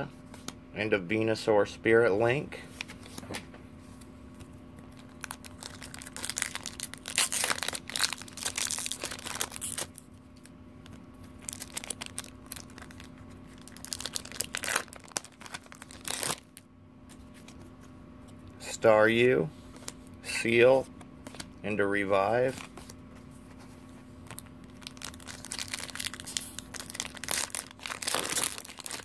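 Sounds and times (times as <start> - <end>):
foil wrapper crinkling and tearing: 4.9 - 16.6, 24.2 - 29.0.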